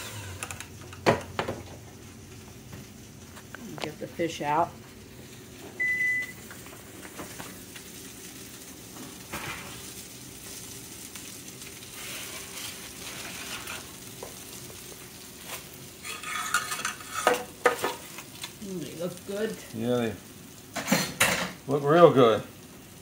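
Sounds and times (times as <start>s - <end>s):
utensil scraping a skillet: 0.0s - 0.7s, 11.2s - 18.6s, 20.7s - 21.6s
onions sizzling in a skillet: 0.0s - 23.0s.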